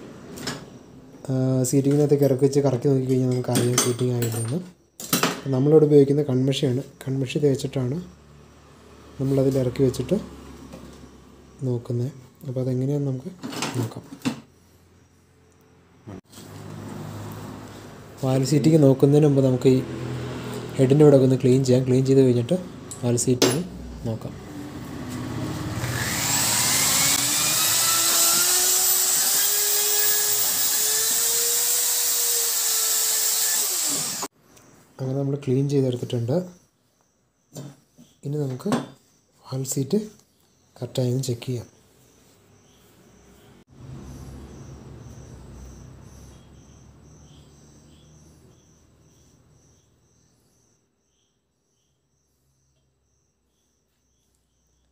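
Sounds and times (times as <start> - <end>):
cricket chirping: 14.4 - 16.2, 34.3 - 35.3, 41.7 - 54.9
electric drill with wire brush: 25.5 - 34.3.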